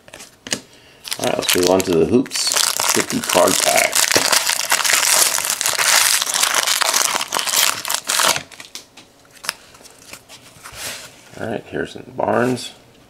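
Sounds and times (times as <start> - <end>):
foil wrapper crinkling: 1.0 - 10.1.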